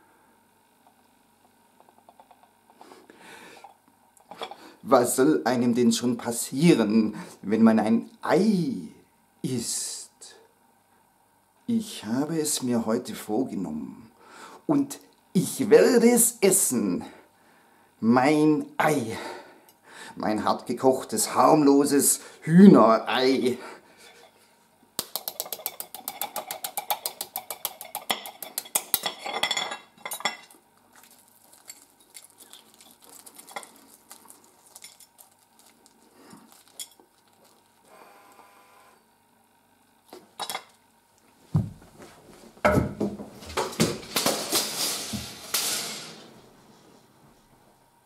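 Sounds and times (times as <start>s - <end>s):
teaspoon tapping egg shell: 25.0s - 29.0s
faint crackling of shell peeling: 30.8s - 37.9s
rustling and thumps: 41.5s - 47.6s.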